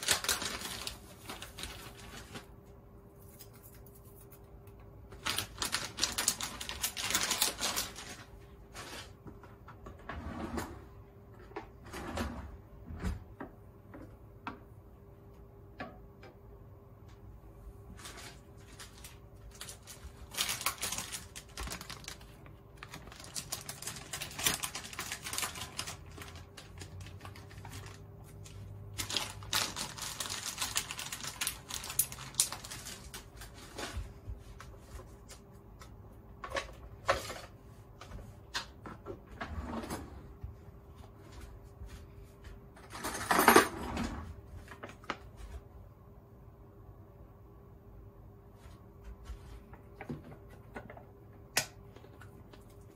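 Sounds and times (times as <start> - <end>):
faint steady hum: 0.0 - 52.9
kitchen things clicking and clattering: 42.8 - 44.3.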